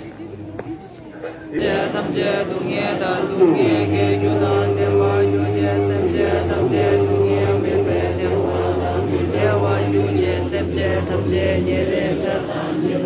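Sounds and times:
men chanting in unison: 1.5 - 13.0
low steady drone: 3.6 - 12.2.

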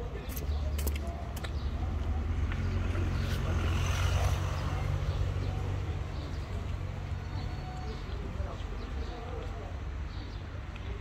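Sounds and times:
low traffic rumble: 0.0 - 11.0
vehicle passing: 1.6 - 8.8.

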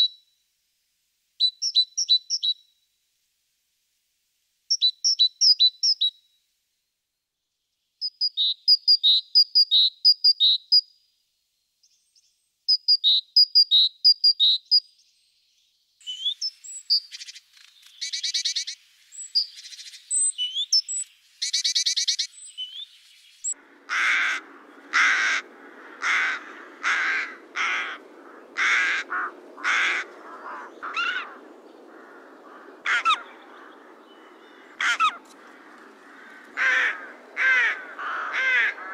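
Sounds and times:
steady background hiss: 0.0 - 4.8, 14.8 - 38.9
great tit singing: 24.2 - 38.9.

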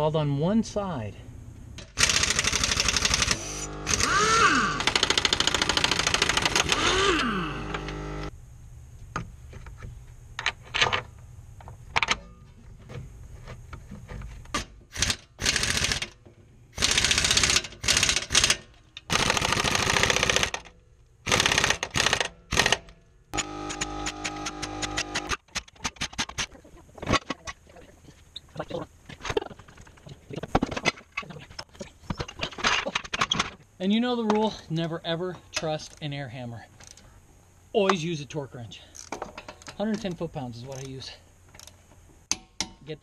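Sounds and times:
pneumatic impact wrench hammering: 1.8 - 8.3, 14.5 - 16.2, 16.8 - 26.5, 42.3 - 42.8.

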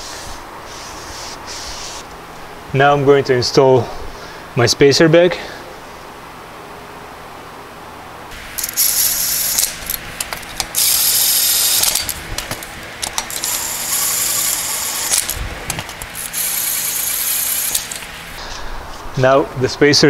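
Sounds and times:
impact wrench running: 8.3 - 18.4.

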